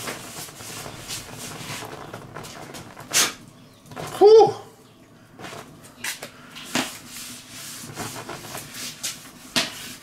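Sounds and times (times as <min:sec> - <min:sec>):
paper towel scrubbing metal plate: 0:00.0 - 0:03.4, 0:06.8 - 0:10.0.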